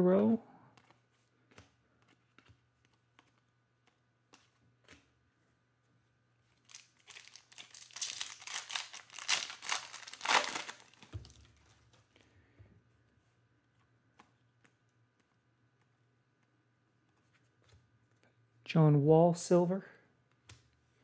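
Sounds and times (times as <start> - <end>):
foil wrapper crinkling and tearing: 6.6 - 11.4.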